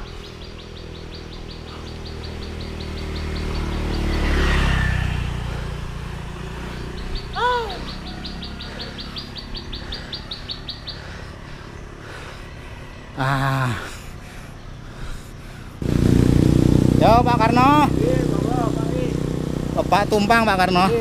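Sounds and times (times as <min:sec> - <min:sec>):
bird trilling: 0:00.0 - 0:04.8, 0:06.8 - 0:12.0
motorbike passing: 0:00.0 - 0:21.0.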